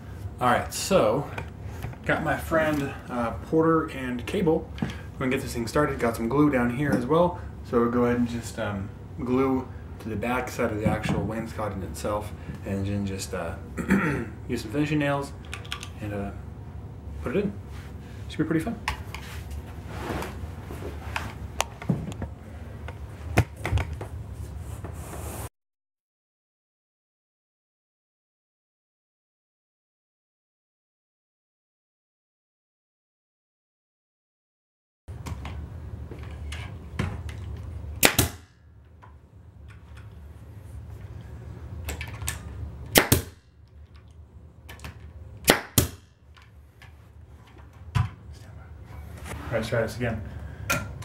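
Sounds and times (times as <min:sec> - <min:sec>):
nail gun firing: 0:38.0 - 0:38.5, 0:42.9 - 0:43.4, 0:45.4 - 0:46.0.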